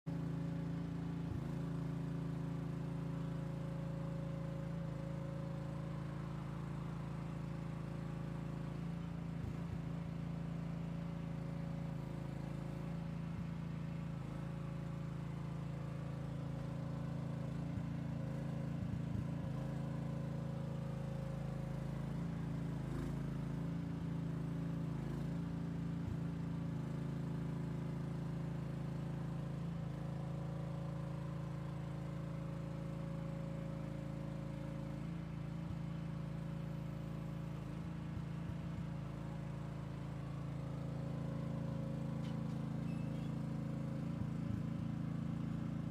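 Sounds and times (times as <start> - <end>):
excavator engine humming: 26.9 - 45.9.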